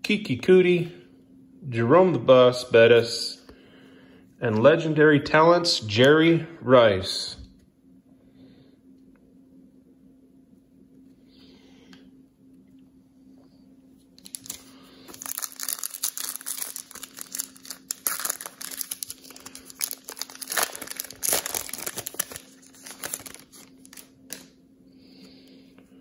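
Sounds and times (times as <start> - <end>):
foil pack crinkling: 14.2 - 24.5.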